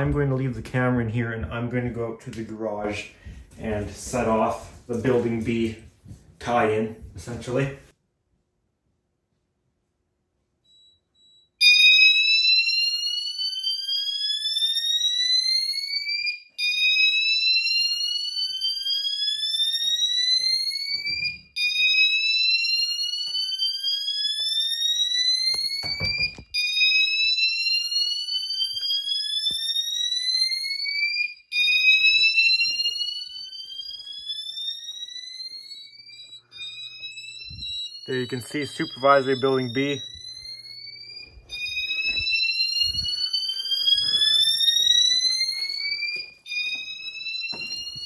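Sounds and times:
fire alarm rising sweep tone: 0:10.7 - 0:48.0.

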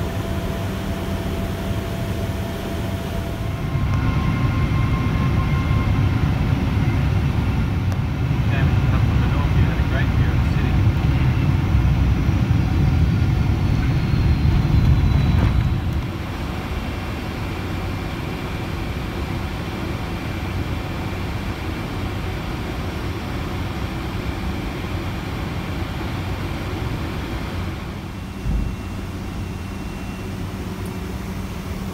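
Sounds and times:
deep rumble of plane landing: 0:00.0 - 0:31.9
steady cabin hum: 0:00.0 - 0:31.9.

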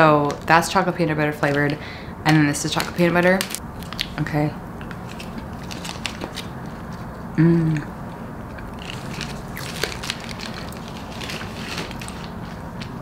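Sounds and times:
eating crackles and mouth clicks: 0:04.8 - 0:12.9
person humming: 0:07.4 - 0:08.0.

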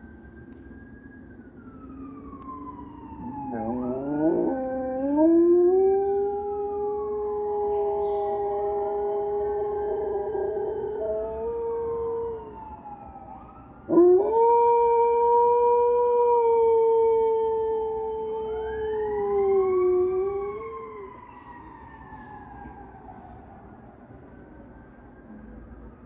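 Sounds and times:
sirens wailing: 0:00.0 - 0:26.0
dog howling: 0:03.2 - 0:12.6, 0:13.9 - 0:21.2.

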